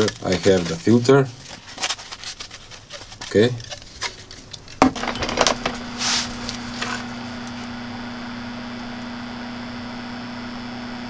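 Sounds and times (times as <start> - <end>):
fan whirring: 0.0 - 11.0
short hiss: 5.9 - 6.6.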